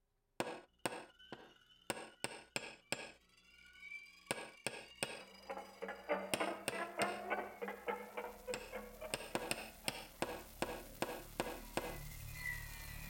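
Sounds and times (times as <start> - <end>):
metallic hammer strikes ringing: 0.4 - 3.2, 4.3 - 7.3.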